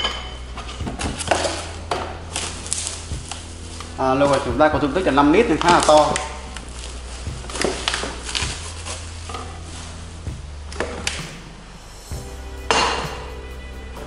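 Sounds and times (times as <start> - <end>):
quiet background music: 0.0 - 14.0
packaging rustling: 0.6 - 10.2.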